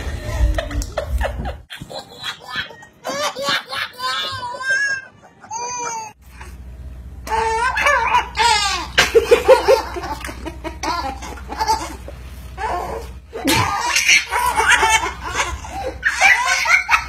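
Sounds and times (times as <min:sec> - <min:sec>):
man laughing: 0:04.1 - 0:06.1.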